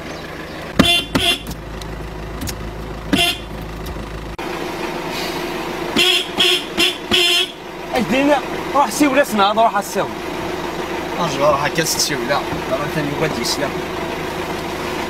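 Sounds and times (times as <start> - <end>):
car horn toots: 0.8 - 1.6, 3.1 - 3.7, 6.0 - 7.6.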